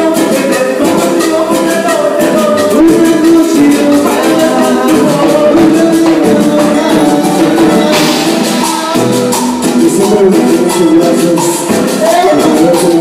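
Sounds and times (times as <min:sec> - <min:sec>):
accordion: 0:00.0 - 0:13.0
lead singer's voice: 0:00.0 - 0:13.0
live dance band playing: 0:00.0 - 0:13.0
timbales and percussion: 0:00.0 - 0:13.0.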